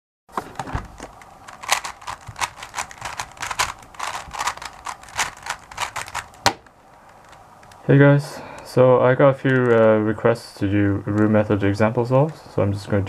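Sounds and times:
puzzle cube layers clacking: 0.4 - 7.8.

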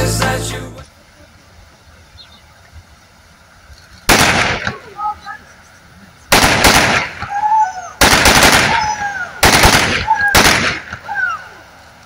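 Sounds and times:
automatic gunfire bursts: 4.1 - 4.7, 6.3 - 7.2, 8.0 - 10.9.

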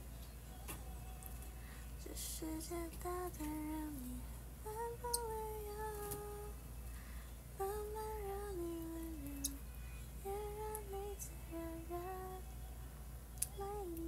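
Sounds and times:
woman humming a slow melody: 10.2 - 12.4, 13.4 - 14.0.

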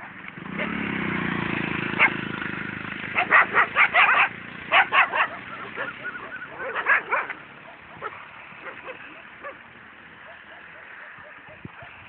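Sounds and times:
dogs barking and yelping: 1.9 - 2.2, 3.1 - 12.0.

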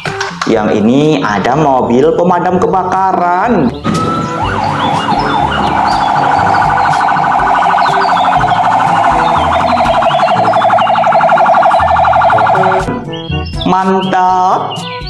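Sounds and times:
electronic siren warbling: 3.8 - 12.9.

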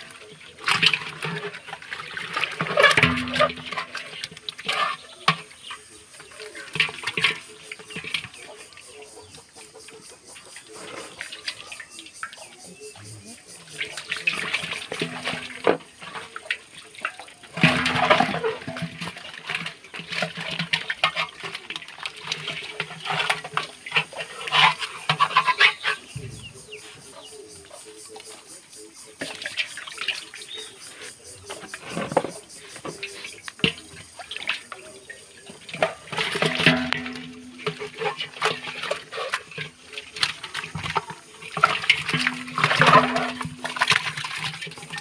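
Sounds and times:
water splashing and sloshing: 0.0 - 45.0
metal knocks: 25.1 - 26.8.

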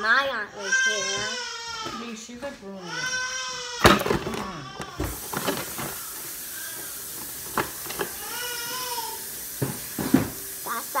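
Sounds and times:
steady hiss: 5.0 - 11.0.

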